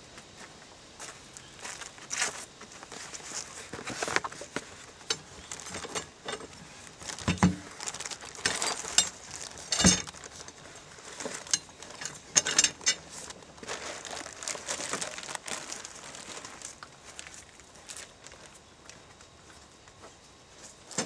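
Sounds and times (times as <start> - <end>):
rustling in cardboard box: 1.6 - 12.0, 13.0 - 18.6.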